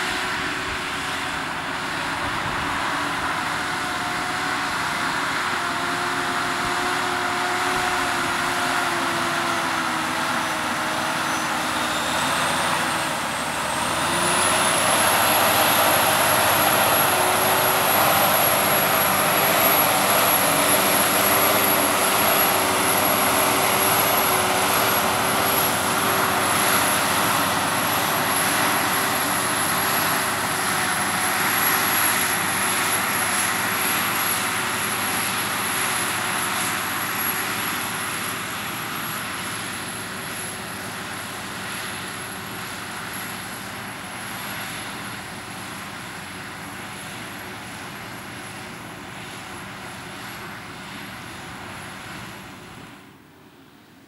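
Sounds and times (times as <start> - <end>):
high whine: 0.0 - 40.7
tractor diesel engine under load: 0.0 - 53.2.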